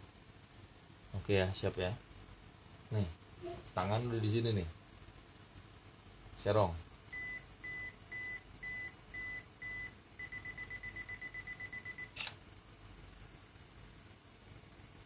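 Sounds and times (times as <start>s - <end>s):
camera timer beeps: 7.2s - 12.4s
camera shutter click: 12.1s - 12.4s.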